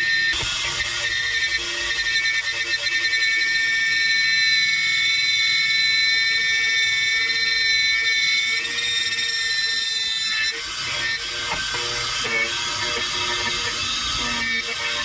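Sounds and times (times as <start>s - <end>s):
high-pitched drive whine: 0.0s - 15.0s
key cutting machine milling: 6.2s - 15.0s.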